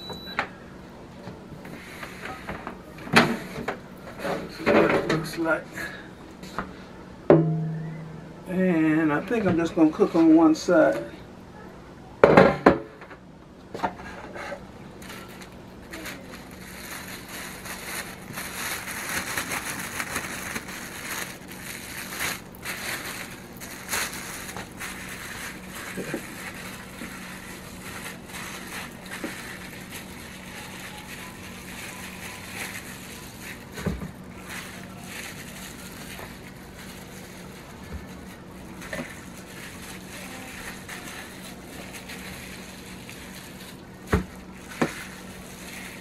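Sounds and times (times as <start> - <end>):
plastic glove crinkling: 15.0 - 46.0.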